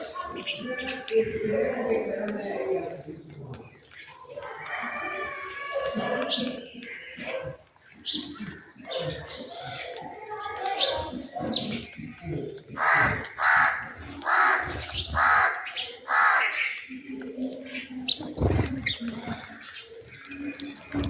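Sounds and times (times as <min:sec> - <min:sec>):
sparrows chirping: 0:00.0 - 0:21.0
crow cawing: 0:12.8 - 0:16.8.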